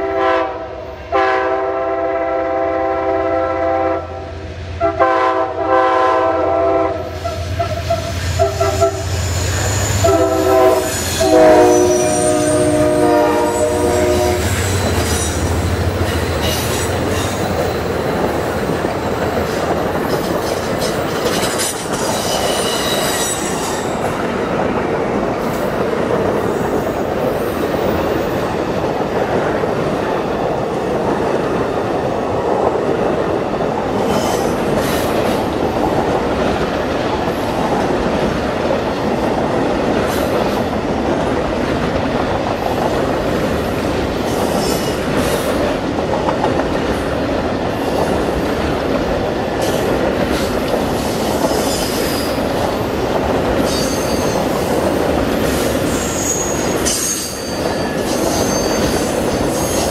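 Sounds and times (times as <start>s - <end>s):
train wheels on rails: 0.0s - 59.9s
high-pitched wheel squeals: 7.3s - 15.5s, 21.6s - 24.0s, 55.9s - 59.9s.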